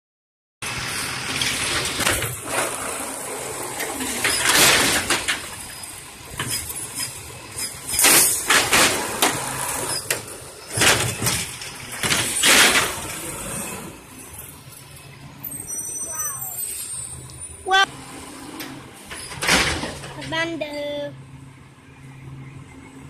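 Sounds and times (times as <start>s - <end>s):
garbage truck engine and hydraulics: 0.6s - 23.0s
trash cart lifted and dumped: 0.7s - 14.5s, 18.2s - 20.6s.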